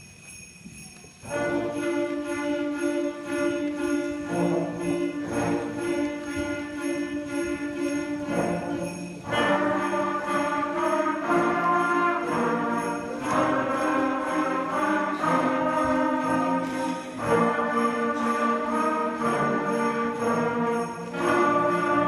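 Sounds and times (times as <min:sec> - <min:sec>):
sleigh bells jingling: 0:00.0 - 0:22.0.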